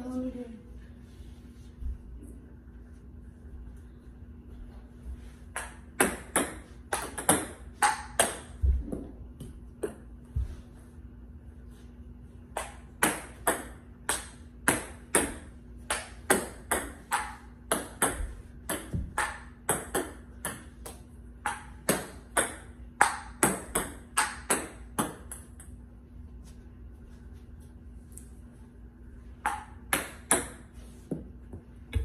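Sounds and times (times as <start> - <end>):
faint steady hum: 0.0 - 32.0.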